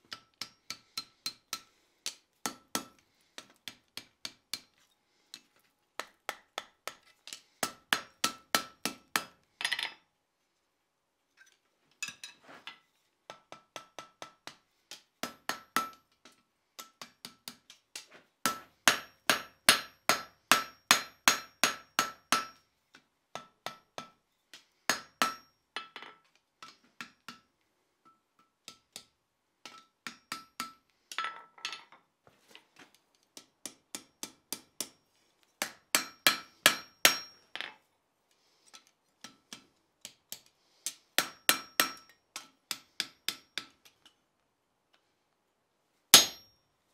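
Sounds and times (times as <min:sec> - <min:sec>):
hammer striking steel on anvil: 0:00.1 - 0:04.7, 0:07.6 - 0:09.4, 0:13.3 - 0:22.6, 0:23.4 - 0:24.2, 0:24.9 - 0:25.9, 0:26.6 - 0:30.8, 0:33.4 - 0:35.0, 0:35.6 - 0:37.4, 0:39.2 - 0:44.2, 0:46.2 - 0:46.6.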